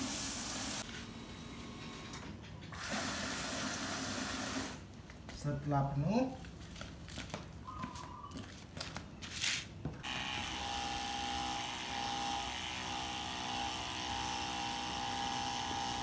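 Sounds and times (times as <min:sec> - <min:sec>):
electric spray pump whine: 0:10.0 - 0:16.0.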